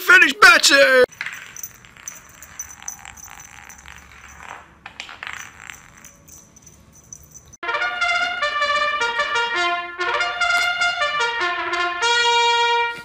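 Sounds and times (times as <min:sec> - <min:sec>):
brass instrument melody: 0:07.6 - 0:13.0.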